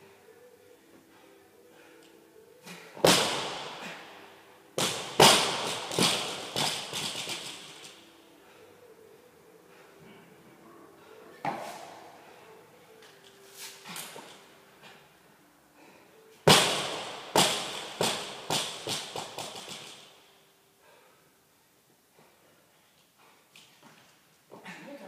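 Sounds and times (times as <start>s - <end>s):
barbell thudding and bouncing: 4.8s - 8.0s.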